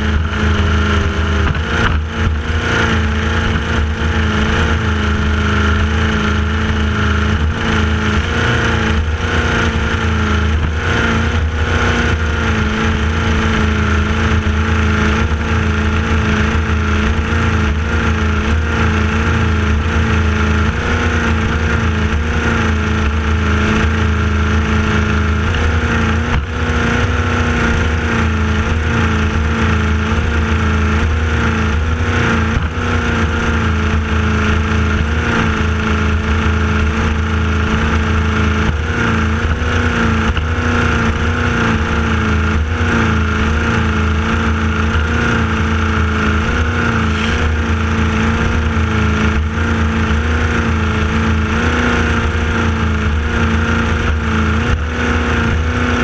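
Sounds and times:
powerboat engine running hard: 0.0s - 56.0s.

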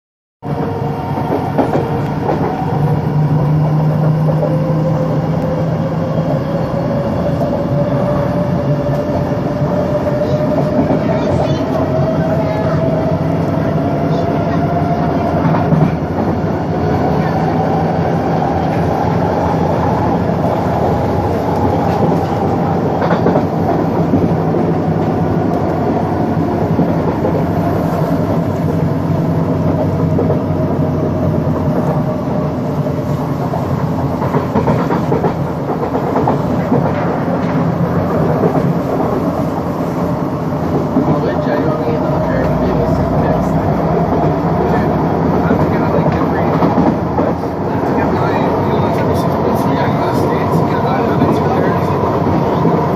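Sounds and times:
train wheels rumbling: 0.4s - 52.9s.

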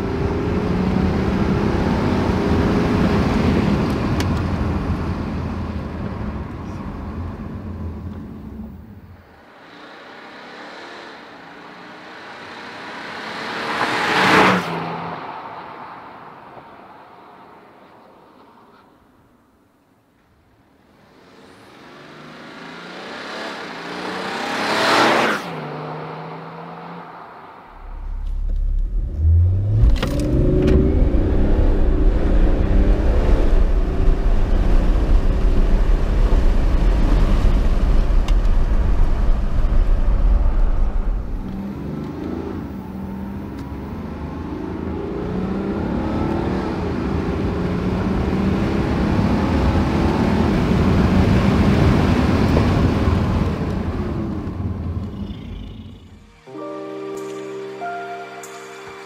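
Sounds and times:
car passing by: 9.5s - 18.8s, 21.2s - 32.8s
diesel engine accelerating: 21.4s - 56.5s.

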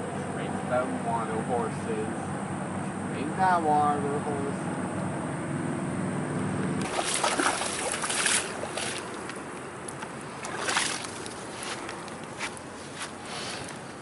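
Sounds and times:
horse splashing through water: 6.8s - 9.4s, 10.3s - 11.6s.

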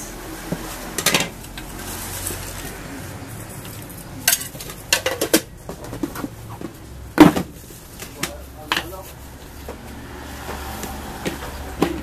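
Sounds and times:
plastic containers clicking and knocking: 11.2s - 12.0s.

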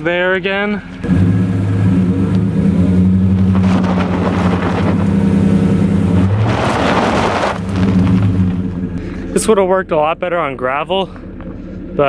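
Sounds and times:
pickup truck engine running: 0.0s - 12.0s
tyres crunching on gravel: 3.0s - 12.0s.

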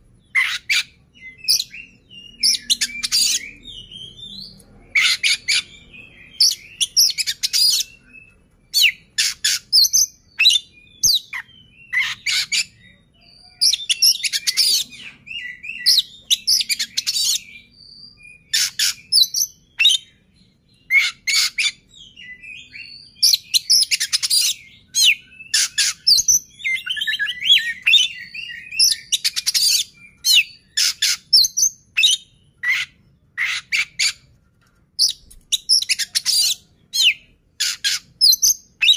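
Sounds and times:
bird singing whistles and chatter: 20.8s - 34.2s.

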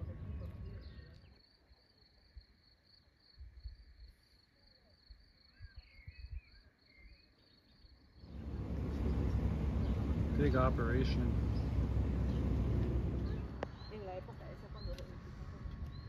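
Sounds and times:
insect trill: 1.1s - 10.2s
bird chirps: 5.2s - 16.0s.

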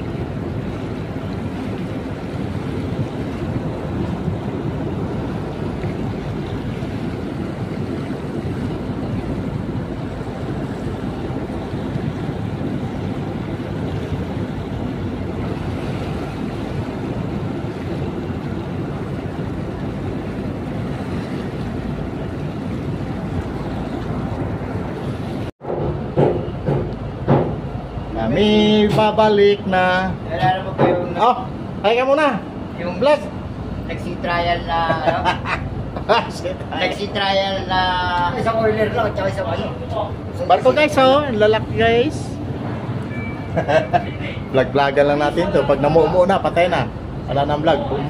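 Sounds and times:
wind on microphone: 0.0s - 29.2s
propeller wash churning: 0.0s - 43.0s
boat engine rumble: 0.0s - 48.0s.

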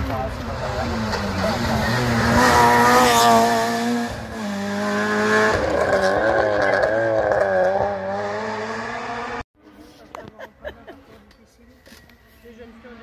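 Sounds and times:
rally car engine accelerating: 0.1s - 9.4s.

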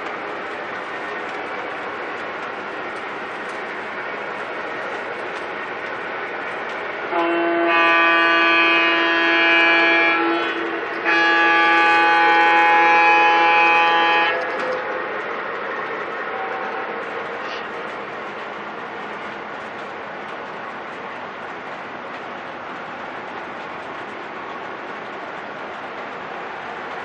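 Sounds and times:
model train rumbling on track: 0.0s - 27.0s
train horn blasts: 7.1s - 14.6s.

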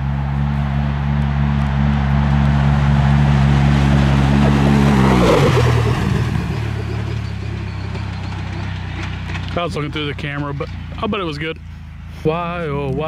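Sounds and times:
off-road vehicle passing at speed: 0.0s - 13.0s.

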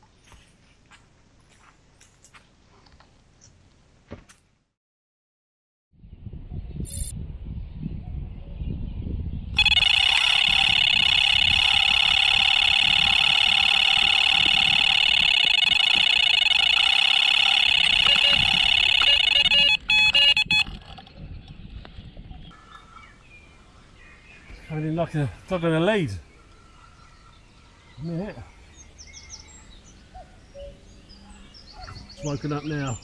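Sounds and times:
bite alarm tone and bleeps: 9.6s - 20.8s.

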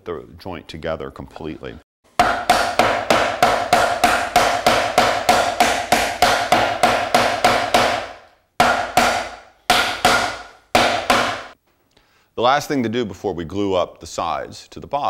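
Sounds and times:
wooden mallet striking wood: 2.2s - 11.6s.

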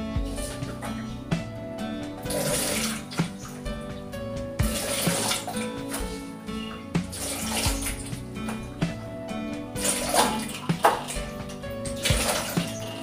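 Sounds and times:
music with a steady beat: 0.0s - 13.0s.

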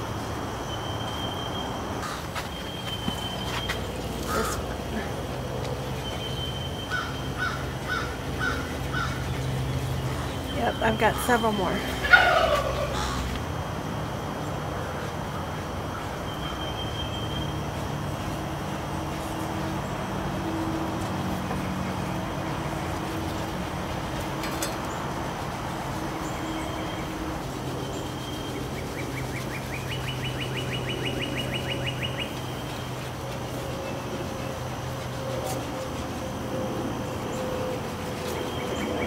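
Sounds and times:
low engine hum: 0.0s - 39.0s
bird trilling: 6.2s - 9.2s, 10.1s - 13.3s.

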